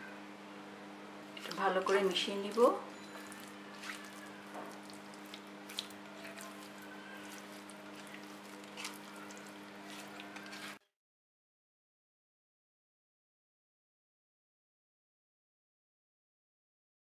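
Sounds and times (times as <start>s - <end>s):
faint wet squishing: 1.2s - 10.8s.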